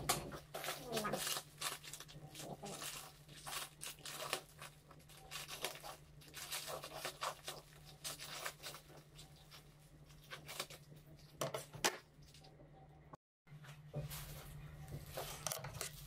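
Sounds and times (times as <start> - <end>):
plastic crinkling and tearing: 0.0 - 11.4
scissors cutting plastic: 0.0 - 12.0.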